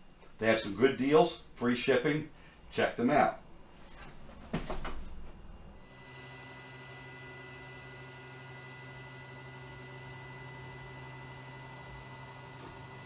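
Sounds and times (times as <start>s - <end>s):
soft handling noise: 3.7s - 5.4s
printer fan humming: 5.8s - 13.0s.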